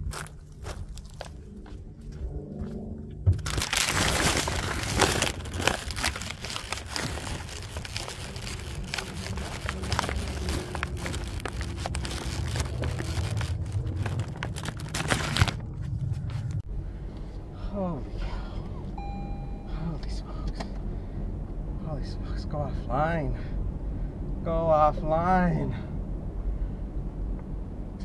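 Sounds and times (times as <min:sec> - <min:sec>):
crinkling handling noise: 0:00.0 - 0:01.6, 0:03.3 - 0:16.6
steady low rumble: 0:00.0 - 0:28.0.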